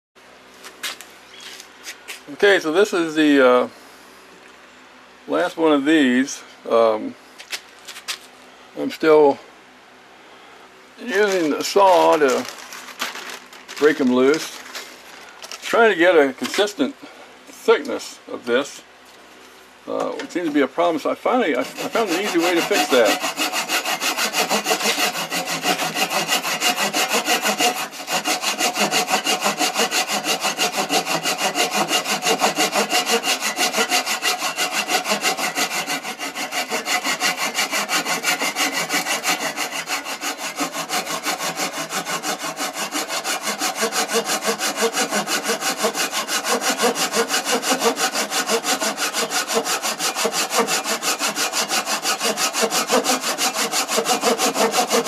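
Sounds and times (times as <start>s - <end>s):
handsaw cutting wood: 11.0s - 14.6s, 21.3s - 55.0s.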